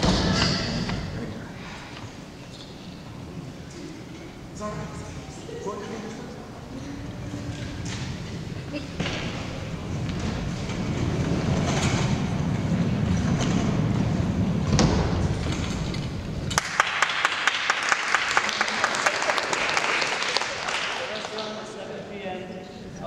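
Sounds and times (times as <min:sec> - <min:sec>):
audience clapping: 0:16.4 - 0:21.8.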